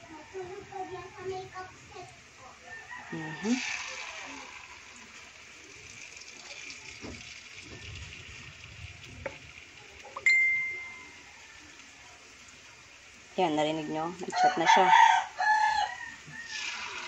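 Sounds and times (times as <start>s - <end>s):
utensil stirring batter in glass bowl: 3.1s - 10.2s, 16.2s - 17.0s
phone notification ding: 10.2s - 11.1s.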